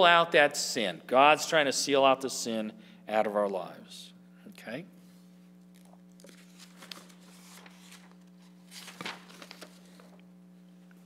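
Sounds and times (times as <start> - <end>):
low electrical hum: 0.0 - 11.0
paper rustling and crinkling: 5.7 - 10.2.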